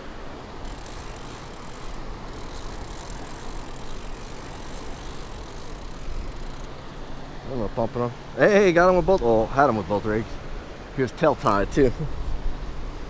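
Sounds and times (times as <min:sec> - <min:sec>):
fishing reel whirring: 0:00.3 - 0:07.0.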